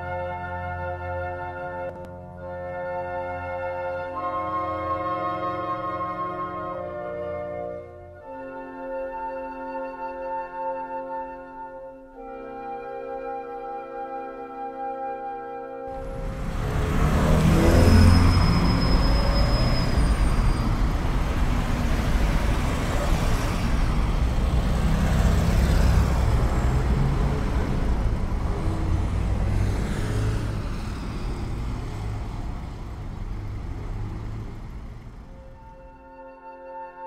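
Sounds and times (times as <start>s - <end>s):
heavy vehicles rumbling: 15.9s - 36.0s
thin high squeal: 17.5s - 21.0s.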